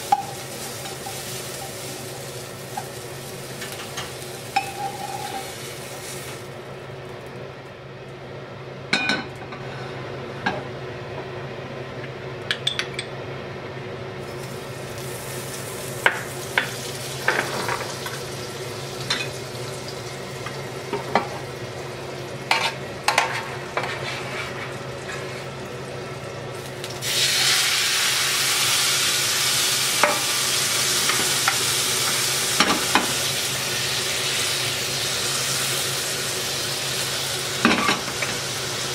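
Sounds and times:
fish sizzling in hot butter: 0:00.0 - 0:06.5, 0:14.3 - 0:20.2, 0:26.6 - 0:38.9
butter sizzling: 0:00.0 - 0:07.3, 0:14.2 - 0:38.9.

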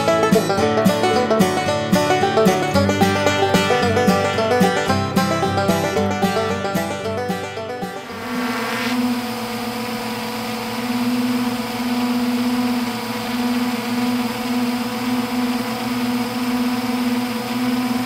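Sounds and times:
drone propellers whirring: 0:07.8 - 0:18.0.

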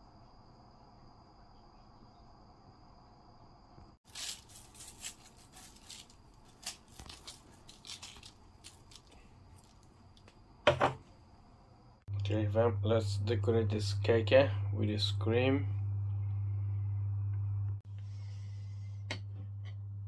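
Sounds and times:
scratchy rustling and scraping: 0:04.0 - 0:09.8.

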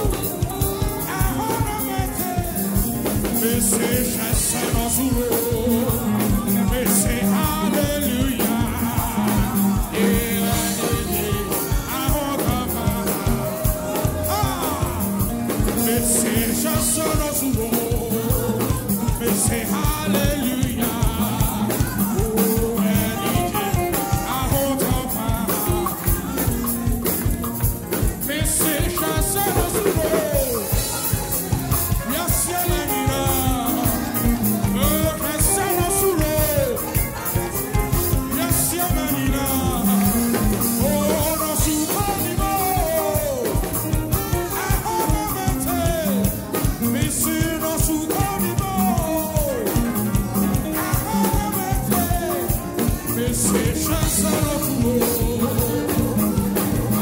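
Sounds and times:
bass guitar: 0:00.0 - 0:57.0
drum kit: 0:00.0 - 0:57.0
electric guitar: 0:00.0 - 0:57.0
keyboards: 0:00.0 - 0:57.0.

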